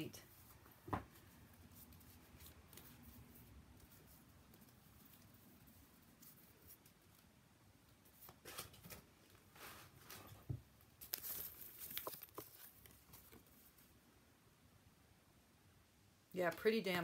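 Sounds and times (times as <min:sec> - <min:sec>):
cards being handled: 0:11.0 - 0:13.6.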